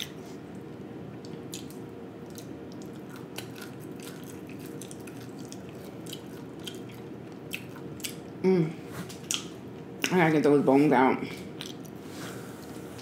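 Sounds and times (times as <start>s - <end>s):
faint steady hum: 0.0s - 13.0s
biting and chewing: 1.3s - 8.3s.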